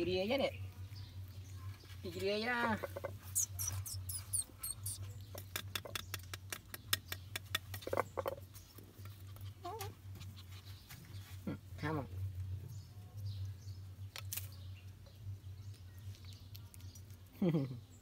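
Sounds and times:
low steady hum: 0:00.0 - 0:18.0
puppies squeaking: 0:02.7 - 0:08.4, 0:09.0 - 0:10.9
puppy whimper: 0:03.4 - 0:05.0, 0:09.5 - 0:10.0.

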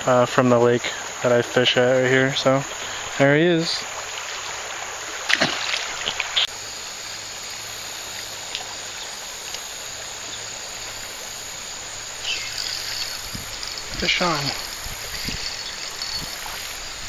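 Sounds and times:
creek water rushing: 0:00.0 - 0:17.0
fish splashing in water: 0:04.0 - 0:06.5.

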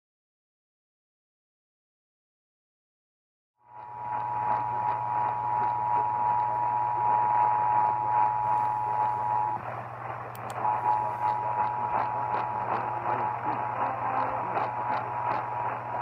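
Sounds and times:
low hum: 0:03.6 - 0:16.0
radio static hiss: 0:10.6 - 0:15.2.

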